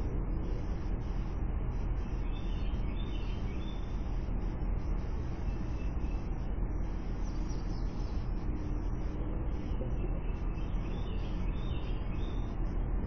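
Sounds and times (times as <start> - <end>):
outdoor background noise: 0.0 - 13.0
faint bird chirps: 1.8 - 4.2, 5.0 - 12.8.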